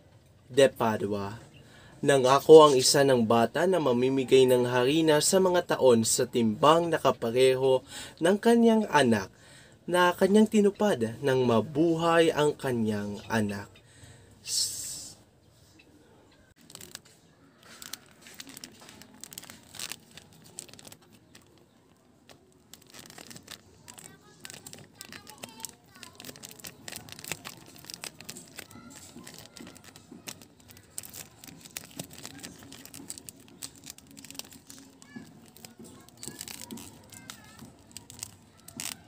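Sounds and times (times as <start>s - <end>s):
plastic wrapping crinkling: 16.5s - 39.0s.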